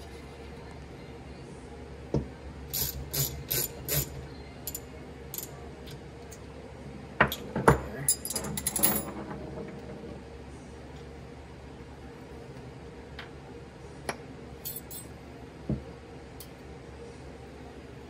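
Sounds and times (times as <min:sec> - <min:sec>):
ratchet wrench clicking: 0:02.7 - 0:04.1
metal tools clinking on bench: 0:02.8 - 0:05.5, 0:08.1 - 0:09.2, 0:14.6 - 0:15.1.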